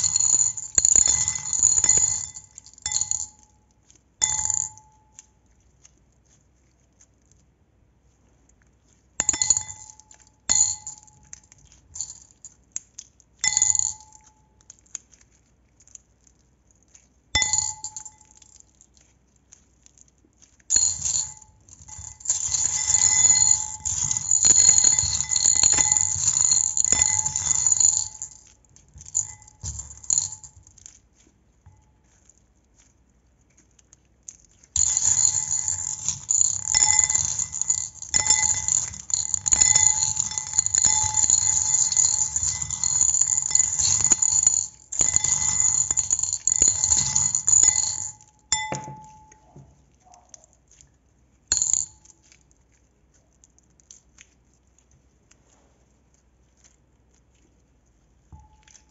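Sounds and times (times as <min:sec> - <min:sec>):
utensil clinking glass bowl: 0:00.0 - 0:05.3, 0:09.2 - 0:12.6, 0:13.4 - 0:14.6, 0:17.4 - 0:18.8, 0:20.7 - 0:31.0, 0:34.5 - 0:50.4, 0:51.5 - 0:52.4, 0:58.4 - 0:58.9
clinking and scraping on glass: 0:00.0 - 0:05.4, 0:09.2 - 0:12.6, 0:13.4 - 0:14.9, 0:17.4 - 0:19.0, 0:20.6 - 0:31.0, 0:34.3 - 0:50.9, 0:51.5 - 0:52.4, 0:58.3 - 0:58.9.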